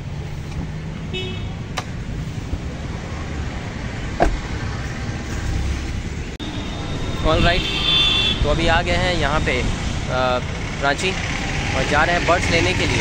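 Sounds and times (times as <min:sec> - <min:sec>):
car engine and road rumble: 0:00.0 - 0:13.0
thump: 0:04.2 - 0:04.5.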